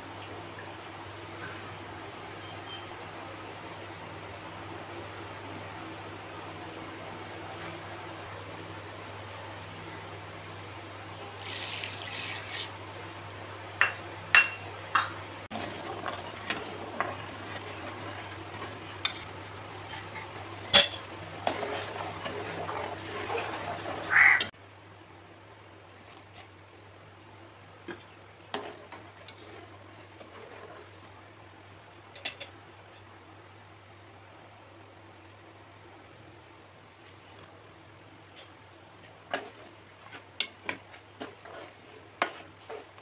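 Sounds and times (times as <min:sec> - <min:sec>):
metal spoon stirring in a pot: 0:14.4 - 0:23.6, 0:28.6 - 0:31.1, 0:39.2 - 0:43.0.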